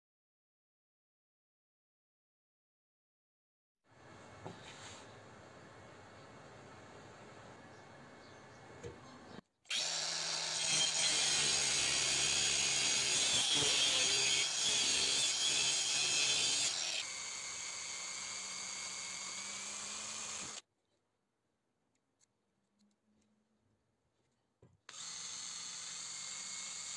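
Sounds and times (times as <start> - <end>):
angle grinder cutting metal: 9.7 - 20.6
electric drill boring metal: 9.7 - 20.6, 24.9 - 26.9.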